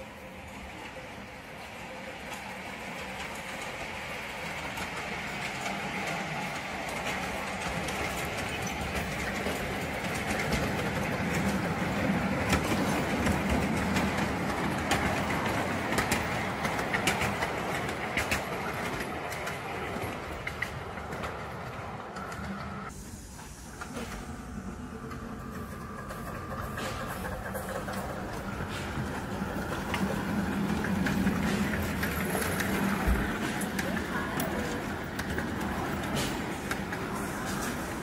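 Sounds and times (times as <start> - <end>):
train wheels rumbling on rails: 0.0 - 38.0.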